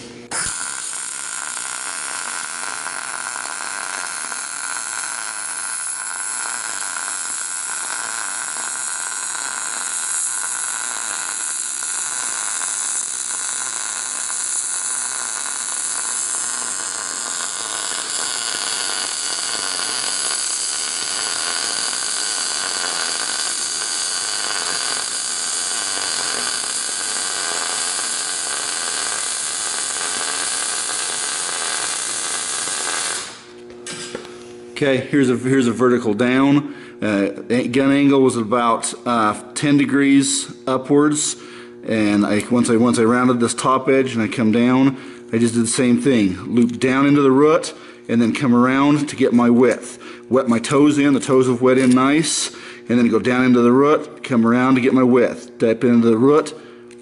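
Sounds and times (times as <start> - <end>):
welding arc hissing: 0.0 - 34.6.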